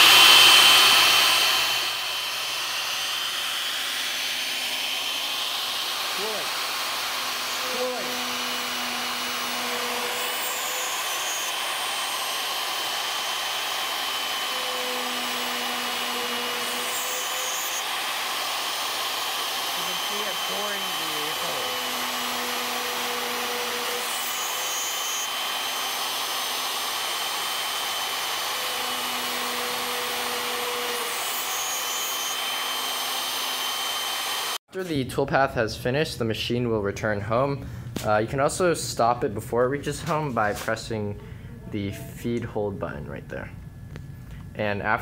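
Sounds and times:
end mill cutting metal: 0.0 - 34.6
router spindle high whine: 0.0 - 34.6.

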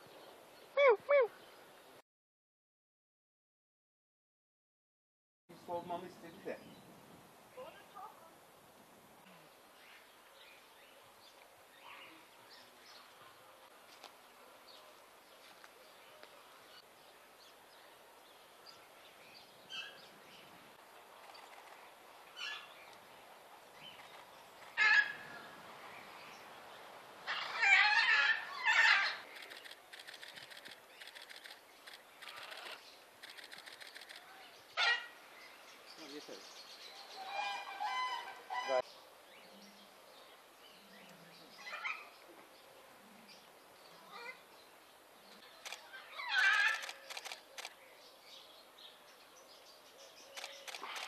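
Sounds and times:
rapid bird chatter: 21.1 - 23.0, 23.8 - 25.0, 28.6 - 37.8, 45.3 - 48.5, 49.5 - 51.0
birds calling: 27.2 - 51.0
bird squawks: 37.2 - 38.8.

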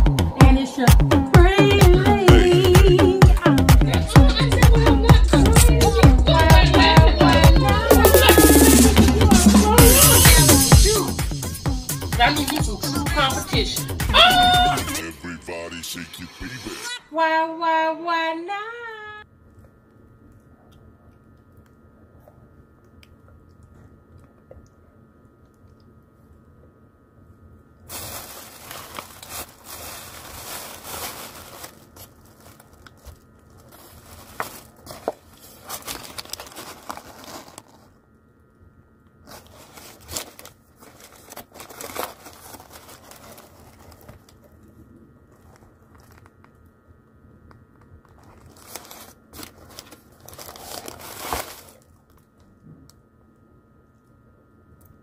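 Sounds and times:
paper crinkling and rustling: 27.9 - 38.0, 39.2 - 46.6, 47.9 - 52.4.

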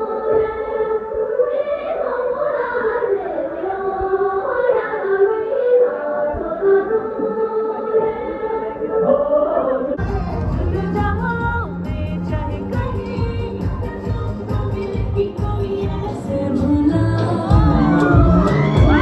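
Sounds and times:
group singing folk song: 0.0 - 11.2
song with heavy bass: 10.0 - 19.0.

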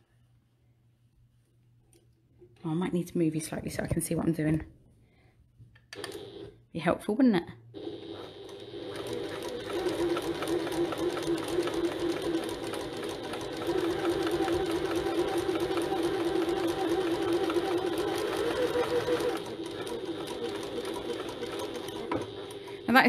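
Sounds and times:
sewing machine stitching: 7.8 - 23.0.

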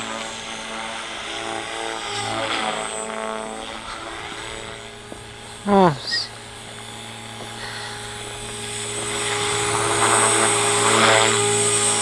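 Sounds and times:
electric helicopter motor whine: 0.0 - 12.0.

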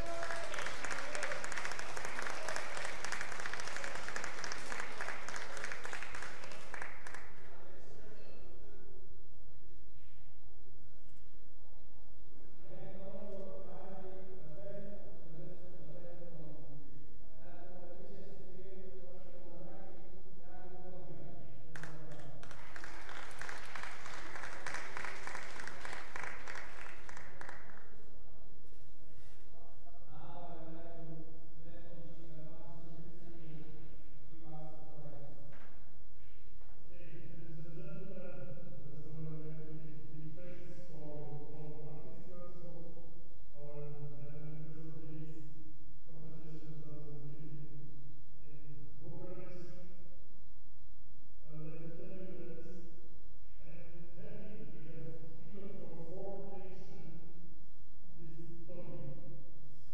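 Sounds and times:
audience applauding: 0.0 - 7.5, 21.8 - 27.8.

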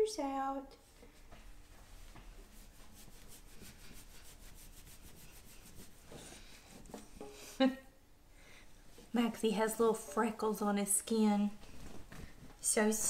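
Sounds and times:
towel rubbing wet dog coat: 2.4 - 6.1.

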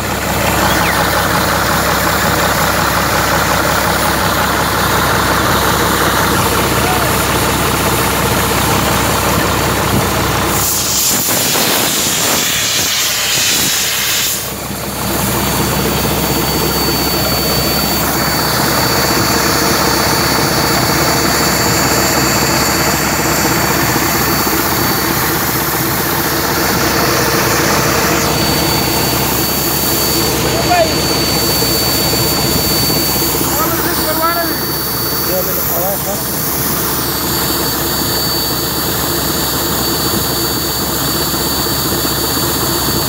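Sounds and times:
thin high whine: 0.0 - 3.4, 15.3 - 40.8
air compressors running: 0.0 - 43.0
air hissing: 10.5 - 14.5.

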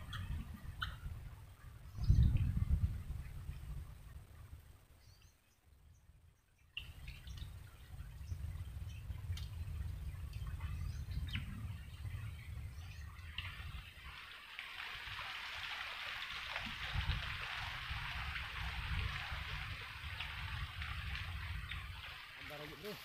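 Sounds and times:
wind rumble on microphone: 0.0 - 23.0
steady hiss: 13.4 - 23.0.

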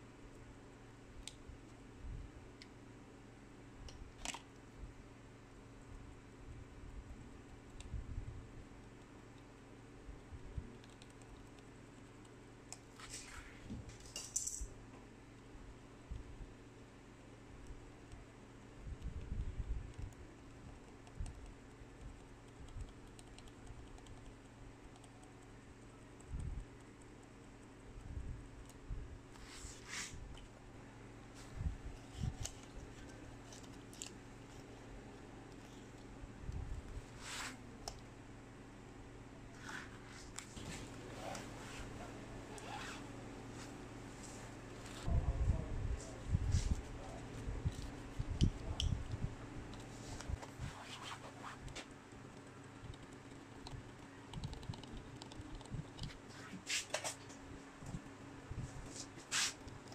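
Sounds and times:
steady low hum: 0.0 - 59.9
faint scratches: 12.9 - 14.1, 29.4 - 30.2, 37.0 - 37.7, 39.5 - 45.2, 49.8 - 57.2
small clicks and taps: 51.7 - 56.2.

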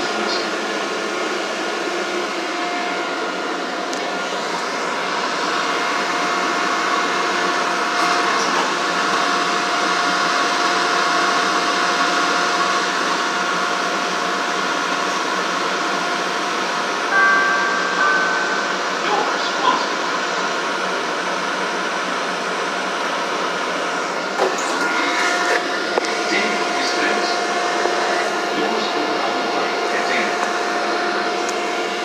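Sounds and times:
thin steady whine: 0.0 - 32.0
train equipment hum: 12.4 - 32.0.

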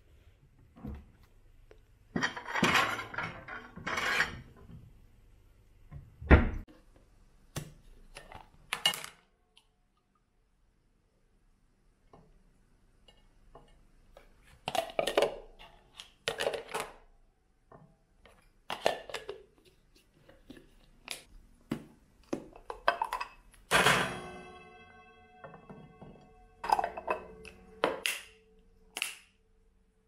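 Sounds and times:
plastic bowls and lids clacking: 13.1 - 17.1, 17.7 - 23.8, 26.6 - 28.3
glass bowl clinking: 22.8 - 28.5.

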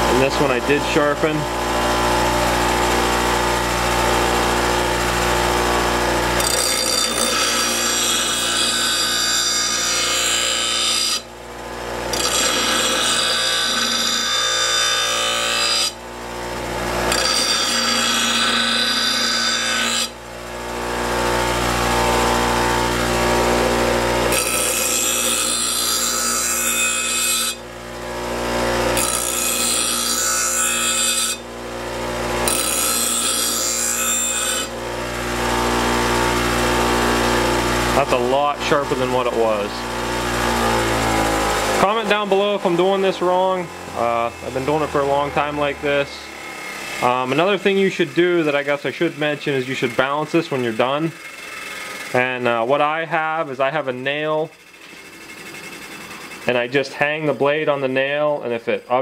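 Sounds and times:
bench grinder motor hum: 0.0 - 59.0
steel blade grinding on wheel: 6.2 - 11.3, 11.9 - 16.0, 16.8 - 20.2, 21.0 - 27.6, 28.2 - 39.7, 44.3 - 59.0.

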